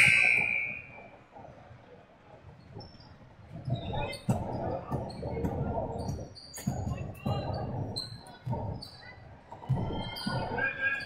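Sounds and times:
ball bouncing in a hall: 3.6s - 11.0s.

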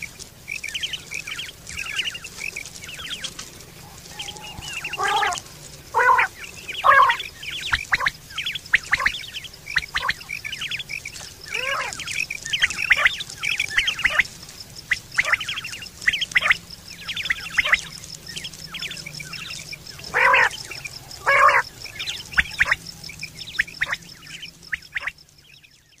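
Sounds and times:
quail chirping and squawking: 0.5s - 25.7s.

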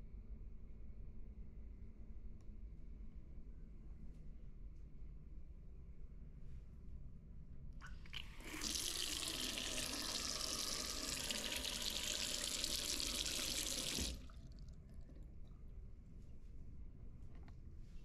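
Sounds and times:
water running into a ceramic bowl: 7.8s - 15.2s.

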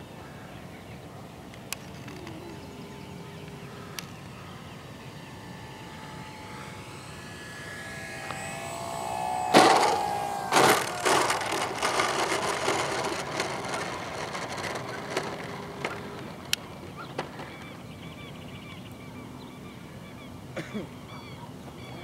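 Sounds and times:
electric motor whining: 1.6s - 17.9s
wheels rattling over rough ground: 9.6s - 17.7s.

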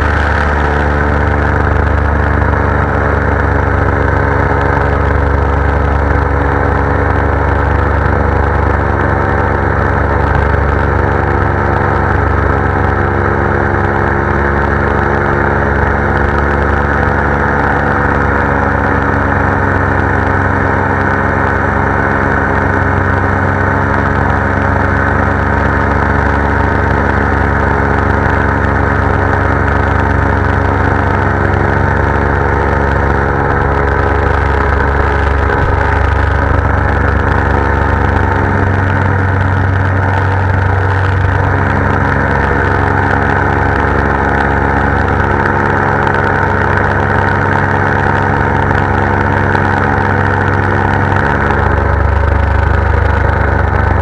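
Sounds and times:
paramotor engine and propeller: 0.0s - 54.0s.

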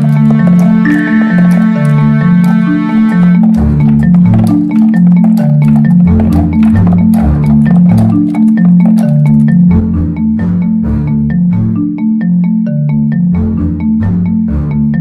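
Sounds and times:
repeating low bass line: 0.0s - 11.8s
plinking percussion notes: 0.0s - 14.4s.

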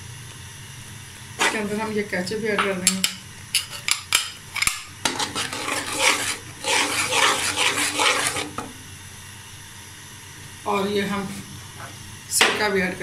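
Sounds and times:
metal spoon scraping a pan: 3.6s - 8.7s
sauce sizzling: 4.4s - 9.6s.

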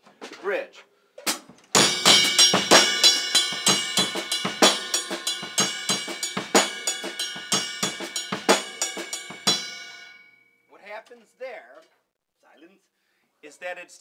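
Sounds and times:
drum kit shuffle groove: 1.2s - 10.2s.

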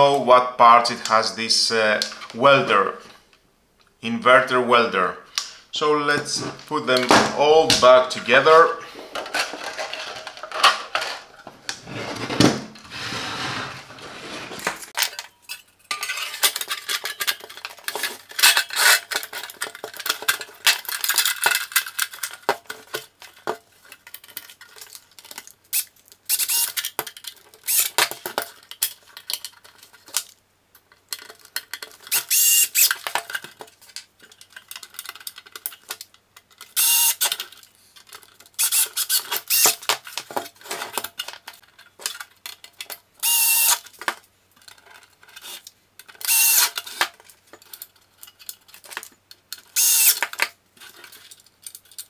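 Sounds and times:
casing scraping: 11.7s - 15.0s
clicks knocks and rattles of casing: 15.0s - 43.1s, 43.8s - 52.0s.

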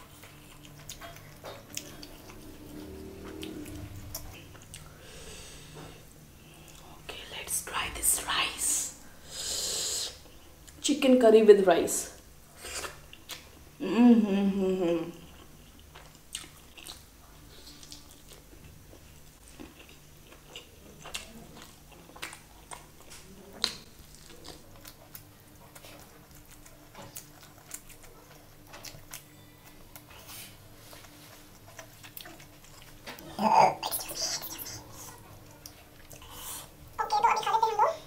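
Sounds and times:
person chewing food: 0.0s - 7.0s, 12.6s - 13.6s, 15.2s - 36.9s.

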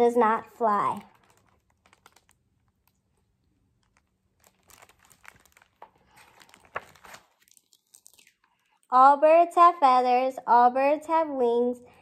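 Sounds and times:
book pages turning: 0.8s - 3.2s, 3.8s - 8.8s.

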